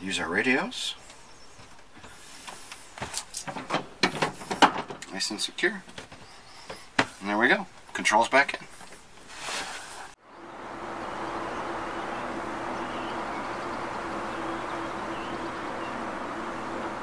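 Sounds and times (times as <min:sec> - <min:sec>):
short rustle: 0:08.6 - 0:10.2
mechanical hum: 0:10.2 - 0:17.0.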